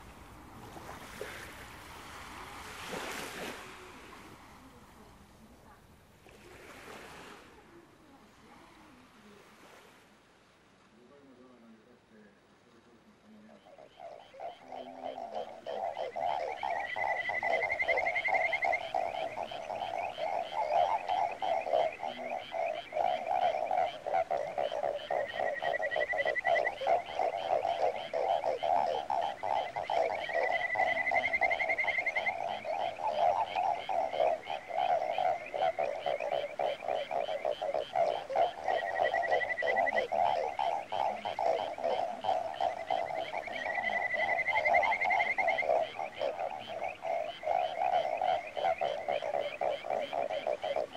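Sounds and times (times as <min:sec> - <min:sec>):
chorus of rapid croaking: 0:13.2 - 0:50.9.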